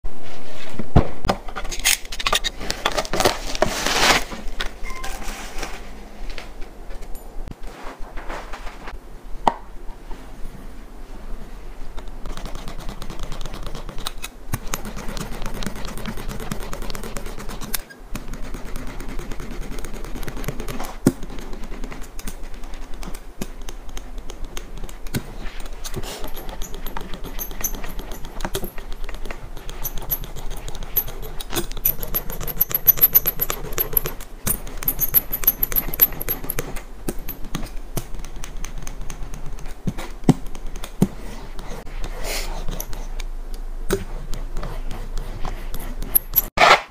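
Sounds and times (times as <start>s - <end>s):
grip tape scraping: 45.0s - 46.9s.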